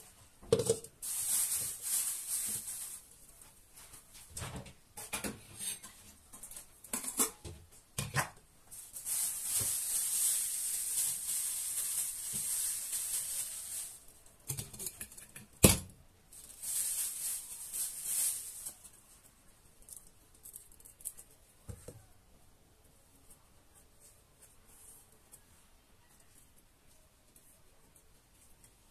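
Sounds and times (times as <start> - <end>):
plastic bag crinkling: 0.6 - 3.4, 8.7 - 15.4, 16.3 - 19.1.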